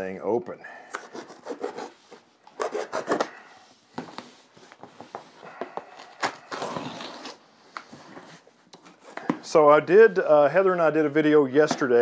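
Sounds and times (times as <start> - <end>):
knife cutting tape and cardboard: 0.9 - 3.4, 6.0 - 7.4.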